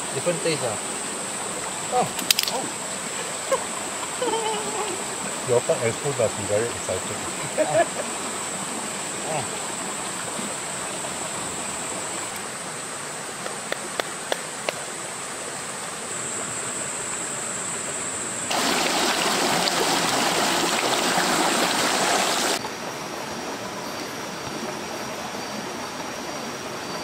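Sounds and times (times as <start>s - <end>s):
loud rush of water: 0.0s - 27.0s
stream running: 0.0s - 27.0s.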